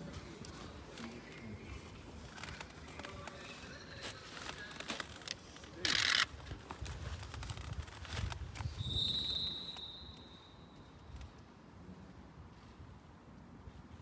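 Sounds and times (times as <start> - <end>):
camera gear handling clicks: 5.1 - 6.5
referee's whistle blast: 8.8 - 10.6.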